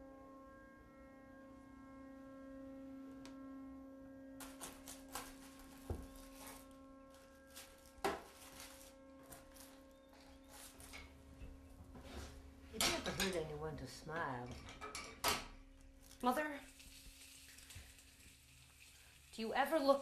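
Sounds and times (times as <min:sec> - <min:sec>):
low hum of held tones: 0:00.0 - 0:20.0.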